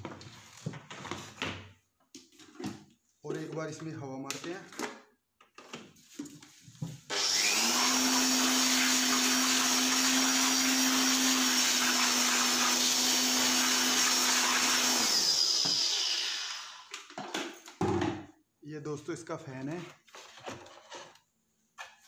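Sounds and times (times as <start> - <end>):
electric air blower running: 7.1 - 16.9.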